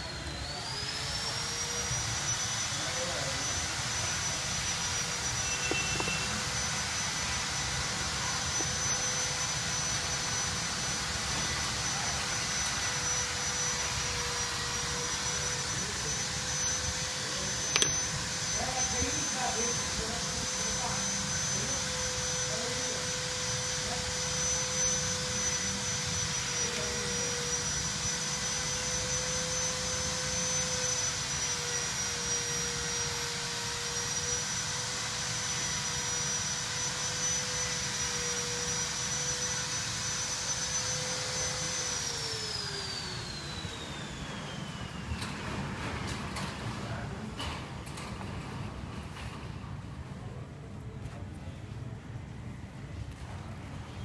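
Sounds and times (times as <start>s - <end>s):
electric motor whining: 0.0s - 47.0s
air hissing: 0.9s - 19.5s.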